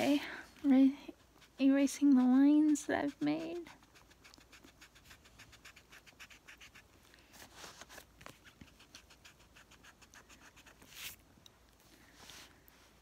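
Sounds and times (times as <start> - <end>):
pencil scratching on paper: 1.1 - 6.9, 8.3 - 11.2.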